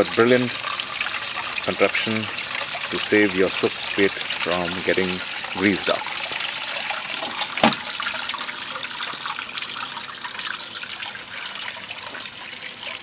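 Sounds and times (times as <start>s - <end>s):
thump: 7.6s - 7.8s.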